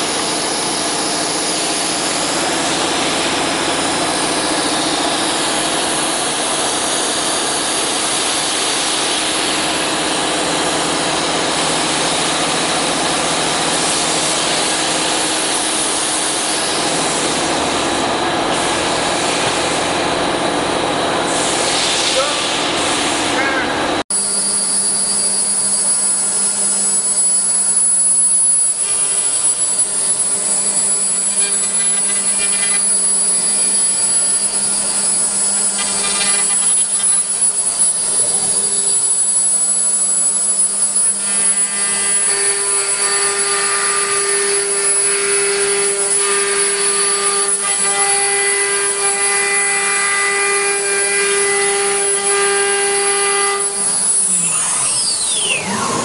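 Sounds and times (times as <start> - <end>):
router spindle whining: 24.3 - 56.0.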